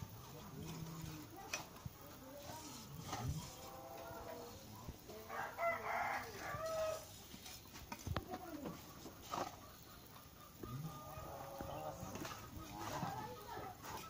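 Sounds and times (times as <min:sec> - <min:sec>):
rooster crowing: 0:05.3 - 0:07.1.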